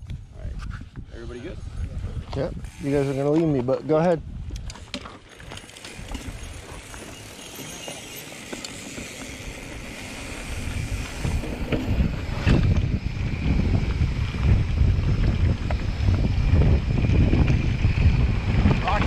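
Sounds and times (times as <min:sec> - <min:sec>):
wind rumble on microphone: 0:00.0 - 0:07.1, 0:09.1 - 0:19.0
bike tyres on gravel: 0:02.7 - 0:19.0
bike clicks and rattles: 0:04.4 - 0:19.0.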